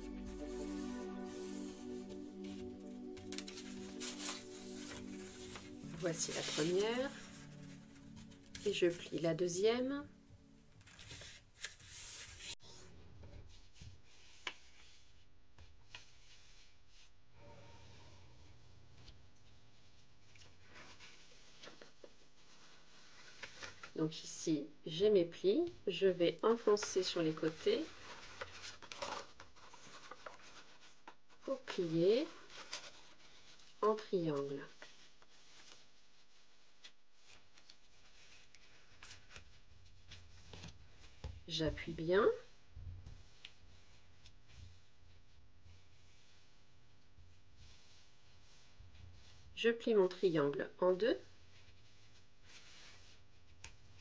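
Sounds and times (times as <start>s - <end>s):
paper rustling: 0.0s - 9.6s, 10.8s - 12.6s, 19.8s - 24.0s, 26.5s - 41.4s, 51.5s - 54.0s
paper rubbing with light ticks: 0.0s - 12.6s, 13.8s - 17.2s, 19.0s - 24.0s, 26.5s - 41.3s, 41.9s - 49.5s, 51.2s - 54.0s.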